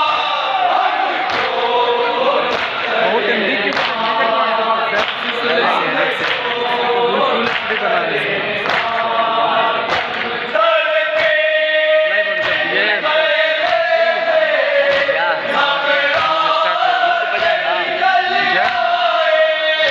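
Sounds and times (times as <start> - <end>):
men chanting: 0.0 - 19.9
hands beating chests: 12.3 - 12.8.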